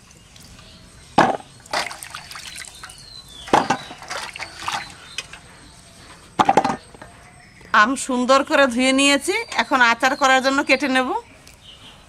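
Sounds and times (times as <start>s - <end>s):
hands sloshing fruit in water: 1.6s - 5.2s
water splashes and drips: 1.6s - 5.3s.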